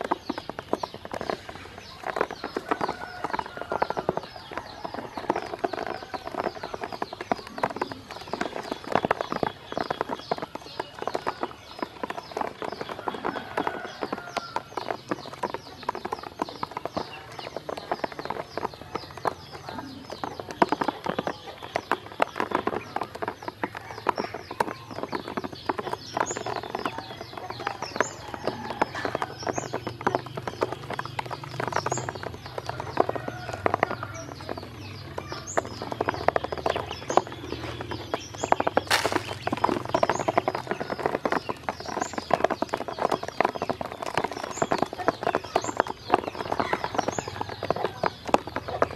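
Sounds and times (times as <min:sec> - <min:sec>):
bills tapping on plastic: 0:00.0 - 0:48.9
ducklings peeping: 0:00.0 - 0:48.9.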